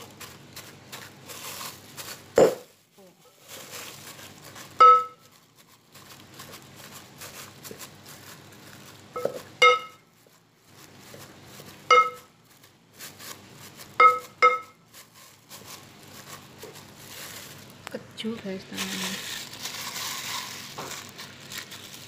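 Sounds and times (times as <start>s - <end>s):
pounder knocking a pot: 2.4s - 2.7s, 4.8s - 5.2s, 9.2s - 10.0s, 11.9s - 12.2s, 14.0s - 14.7s.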